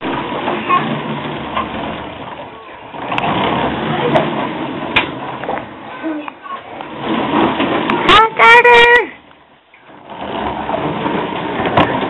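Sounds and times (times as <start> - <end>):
toy truck rolling on hard floor: 0.0 - 12.0.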